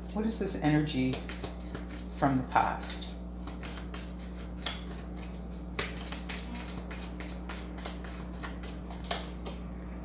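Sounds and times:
steady low hum: 0:00.0 - 0:10.0
cards clicking and flicking: 0:03.4 - 0:09.6.

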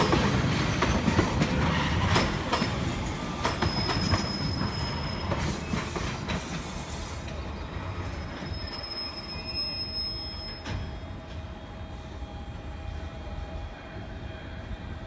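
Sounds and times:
train wagons rumbling: 0:00.0 - 0:11.5
high wheel squeal: 0:03.5 - 0:06.2, 0:07.6 - 0:10.9.

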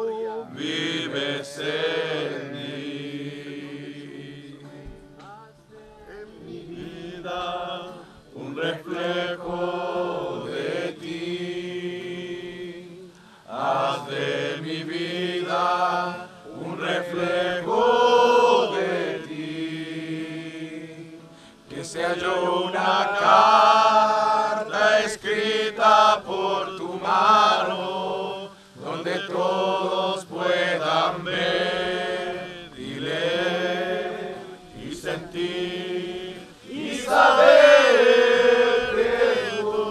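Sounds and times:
congregation singing a hymn: 0:00.0 - 0:39.9.

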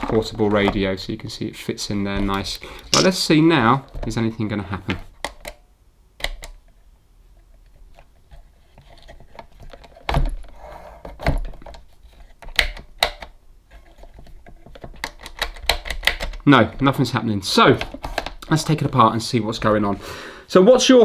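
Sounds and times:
sharp clicks and knocks: 0:11.1 - 0:16.9.

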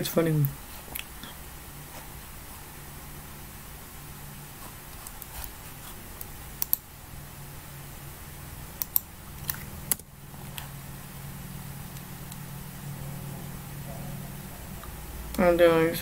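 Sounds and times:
steady low hum: 0:00.0 - 0:16.0
sharp computer clicks: 0:06.6 - 0:06.9, 0:08.8 - 0:10.0.

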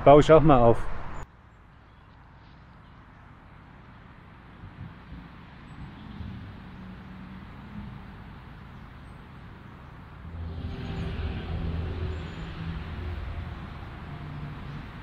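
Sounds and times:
vehicle engine running: 0:10.2 - 0:15.0.

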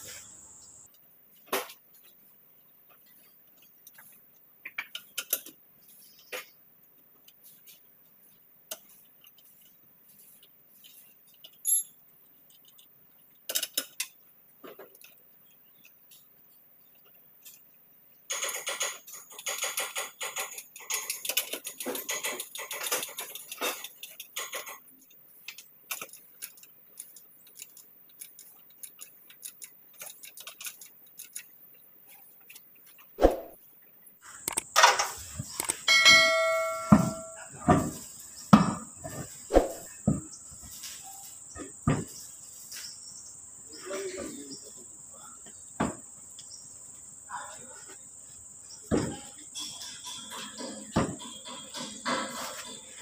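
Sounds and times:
rapid metallic clicking and rattling: 0:18.3 - 0:31.5
wrench clinking on wheel nuts: 0:34.5 - 0:38.0, 0:49.4 - 0:53.0.

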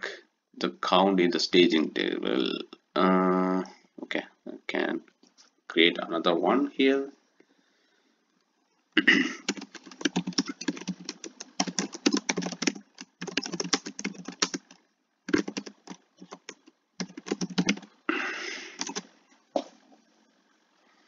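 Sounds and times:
typing on computer keyboard: 0:09.4 - 0:17.9, 0:18.8 - 0:19.0.

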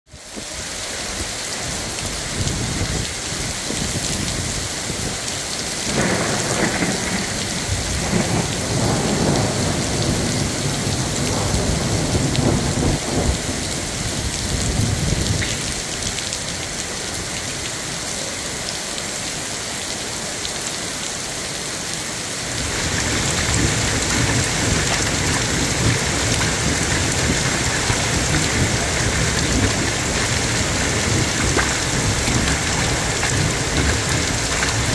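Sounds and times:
heavy rain on pavement: 0:00.1 - 0:34.9
thunder rolling: 0:05.8 - 0:15.7, 0:22.6 - 0:34.9.

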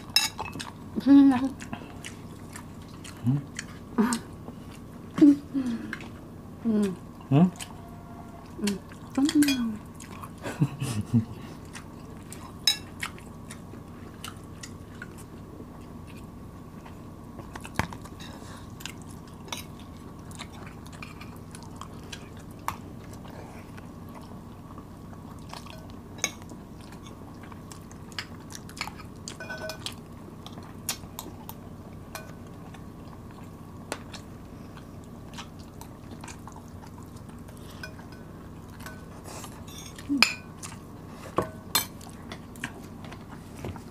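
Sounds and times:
faint steady hum: 0:00.0 - 0:43.9
people chewing: 0:00.3 - 0:43.9
spoons clinking against dishes: 0:29.4 - 0:29.9, 0:39.7 - 0:40.5.

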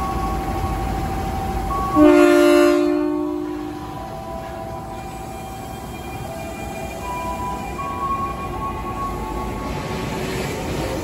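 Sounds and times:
train electrical hum: 0:00.0 - 0:11.0
train horn blast: 0:01.9 - 0:04.0.

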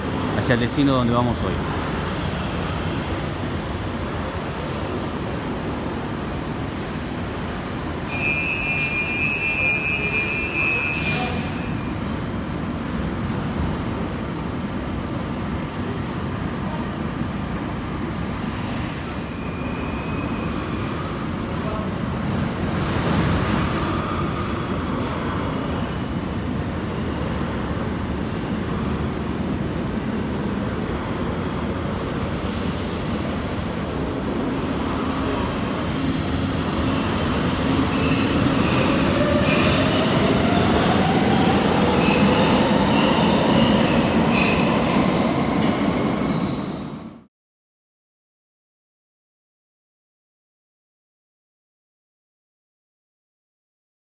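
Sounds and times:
metro station rumbling hum: 0:00.0 - 0:47.3
high-pitched tone from trains: 0:07.6 - 0:12.2, 0:18.6 - 0:21.4, 0:35.2 - 0:45.8.

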